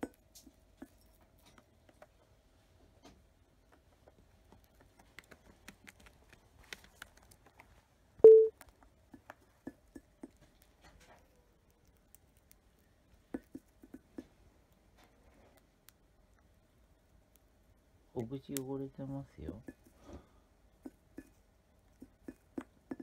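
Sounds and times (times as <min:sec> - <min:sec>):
short beep tone: 0:08.2 - 0:08.5.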